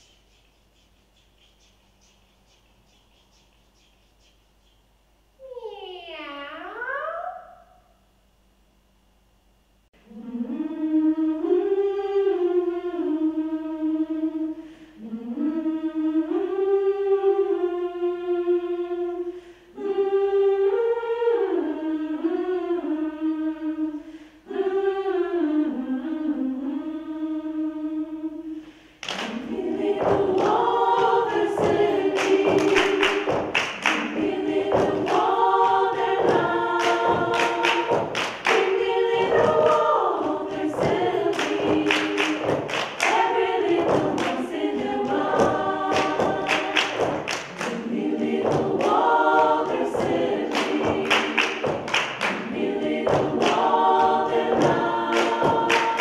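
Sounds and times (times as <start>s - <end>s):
rhythmic hand claps: 0.0s - 4.9s, 29.0s - 56.0s
women's choir singing a cappella: 10.0s - 56.0s.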